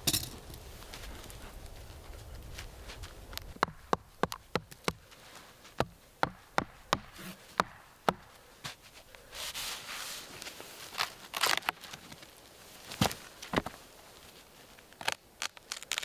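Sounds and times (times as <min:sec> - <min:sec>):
rustling in sawdust: 0:00.0 - 0:03.6, 0:05.0 - 0:06.2, 0:08.3 - 0:16.0
hammering rod into log: 0:05.8 - 0:08.3.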